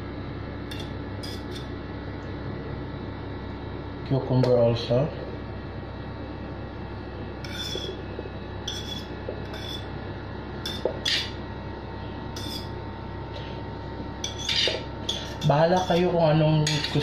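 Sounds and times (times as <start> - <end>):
fork scraping a plate: 0.7 - 1.7, 7.4 - 8.0, 8.7 - 9.9, 12.4 - 12.7.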